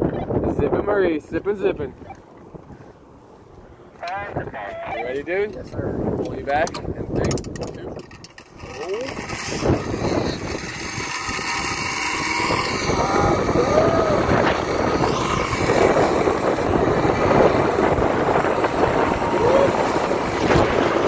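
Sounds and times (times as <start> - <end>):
wind rushing over microphone: 0.0 - 21.0
zip-line trolley on steel cable: 7.3 - 21.0.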